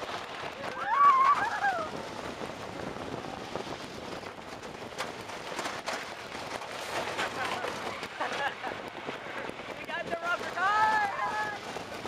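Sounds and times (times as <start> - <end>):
roller coaster rattling on track: 0.0 - 12.0
riders screaming: 0.5 - 2.1.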